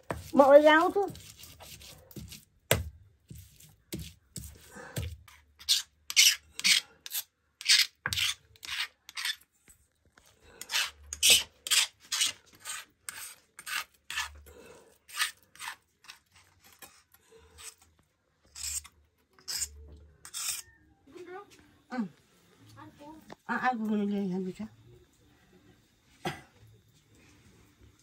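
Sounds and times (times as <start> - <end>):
stone scraping on grinding stone: 5.3 - 9.5, 10.6 - 14.5, 15.1 - 17.8, 18.5 - 20.7.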